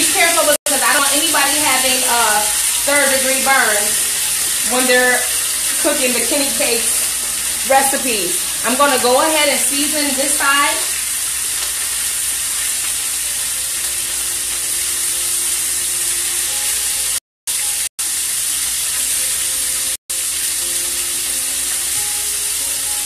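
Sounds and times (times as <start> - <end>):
pork chops sizzling in frying pan: 0.0 - 23.0.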